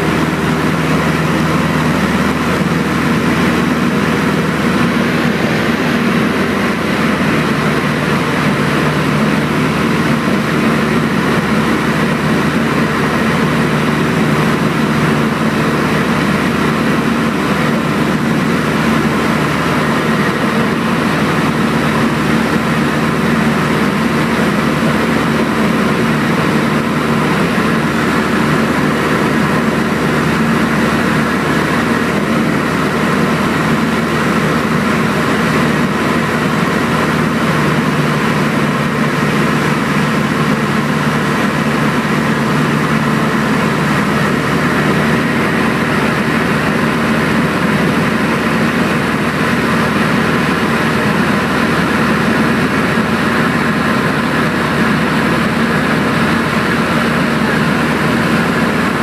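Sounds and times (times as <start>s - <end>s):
airplane engine and propeller drone: 0.0s - 59.0s
rushing cabin noise: 0.0s - 59.0s.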